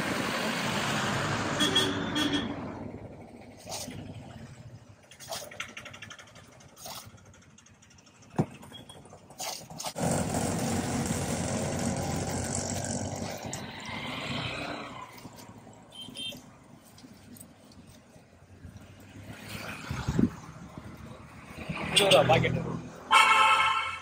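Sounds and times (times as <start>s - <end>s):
vehicle engine running: 2.6s - 13.5s.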